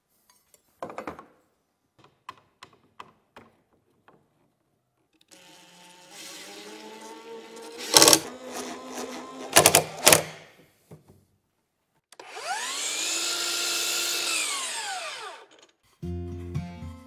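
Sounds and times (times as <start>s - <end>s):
cordless drill driving screws: 5.3s - 10.4s, 12.2s - 15.7s
miter saw motor whining: 12.2s - 15.6s.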